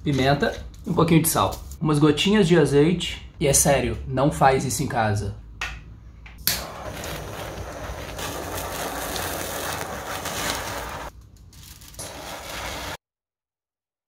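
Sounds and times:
butane torch hissing: 6.4 - 11.1, 11.9 - 13.0.

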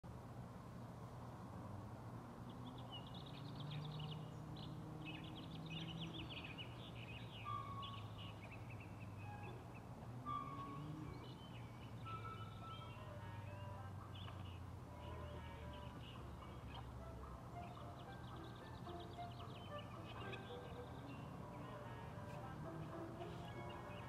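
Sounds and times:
small birds chirping: 2.4 - 24.0
clear whistled notes: 7.3 - 13.6.

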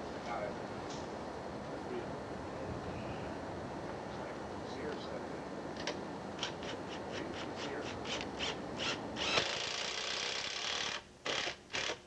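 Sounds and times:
steady tool noise: 6.4 - 12.0.

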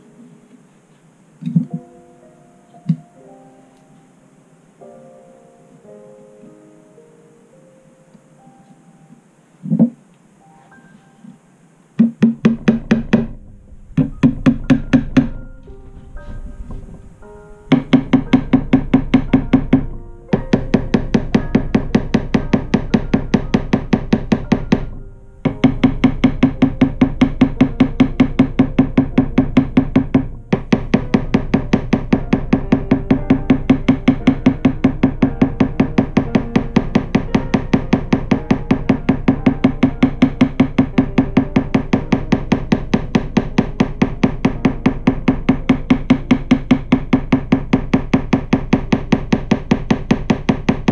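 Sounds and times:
low ringing: 12.6 - 50.9.

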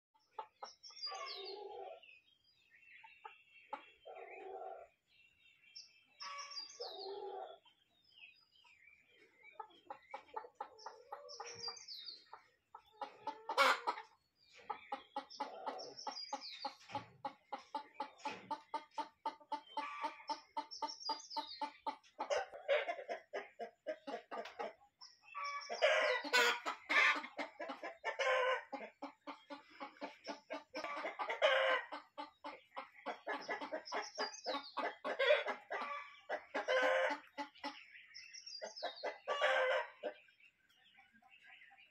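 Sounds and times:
chickens clucking: 0.2 - 41.9.

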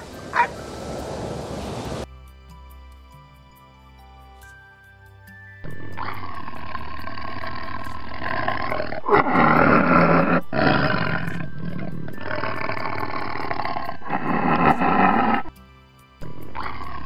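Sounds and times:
tiger roaring: 5.9 - 15.5, 16.2 - 17.0.

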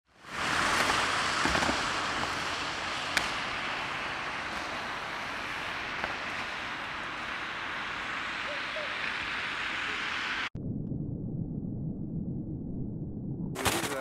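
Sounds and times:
rushing outdoor noise: 0.1 - 10.5.

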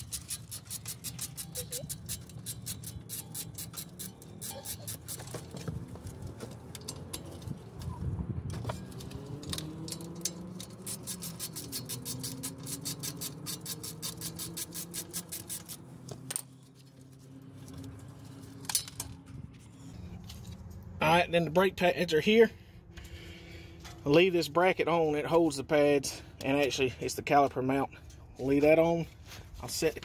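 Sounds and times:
ratchet clicking rapidly: 0.0 - 5.3, 9.9 - 15.8.

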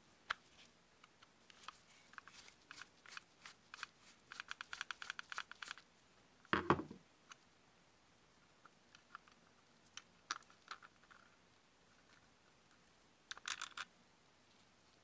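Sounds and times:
knock: 6.6 - 7.0.

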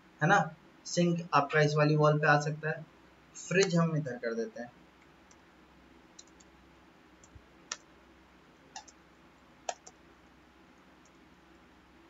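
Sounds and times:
mouse and keyboard clicks: 6.2 - 6.5, 8.8 - 9.0, 9.7 - 10.0.

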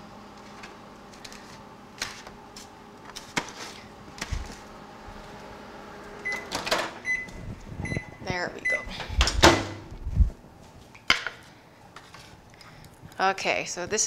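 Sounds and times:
microwave oven humming: 0.0 - 11.9
microwave beep: 6.2 - 9.0.

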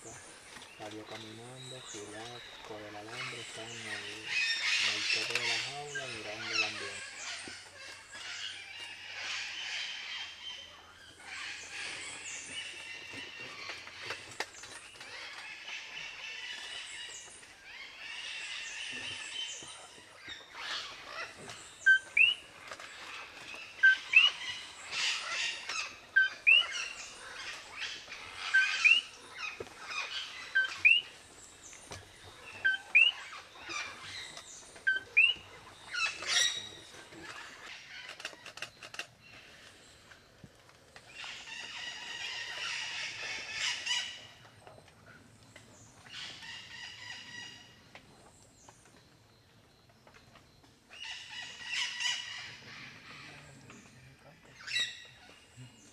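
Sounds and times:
parrots squawking: 23.8 - 31.1.

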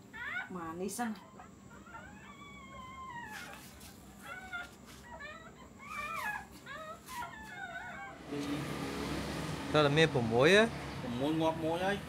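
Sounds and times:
dogs whimpering: 0.0 - 8.4.

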